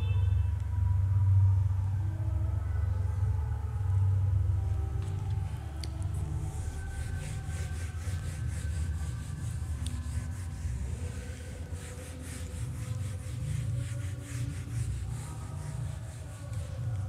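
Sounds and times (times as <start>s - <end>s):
duster rubbing on whiteboard: 6.1s - 17.0s.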